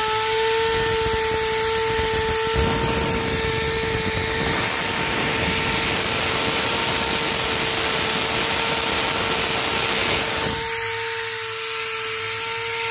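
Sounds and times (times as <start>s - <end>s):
grinding machine motor whine: 0.0s - 12.9s
harsh rushing grinding noise: 0.0s - 12.9s
low hum: 0.3s - 12.5s.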